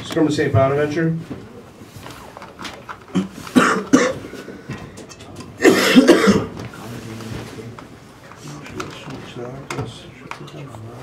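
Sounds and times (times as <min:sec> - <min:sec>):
person coughing: 0:03.1 - 0:04.4, 0:05.6 - 0:06.6.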